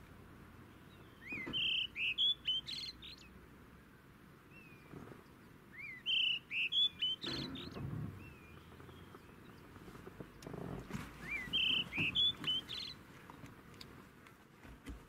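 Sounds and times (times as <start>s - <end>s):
kingfisher whistled calls: 1.1s - 3.2s, 5.7s - 7.8s, 11.2s - 13.0s.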